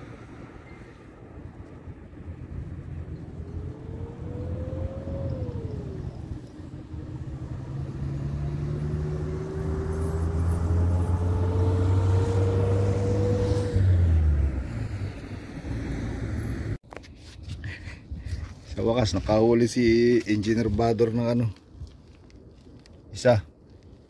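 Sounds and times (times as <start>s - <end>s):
vehicle engine hum rising in pitch: 0.1s - 16.8s.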